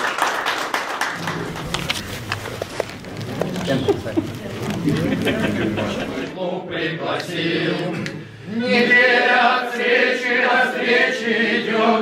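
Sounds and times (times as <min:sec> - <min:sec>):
people talking: 0:03.2 - 0:06.4
group of people singing together: 0:04.9 - 0:12.0.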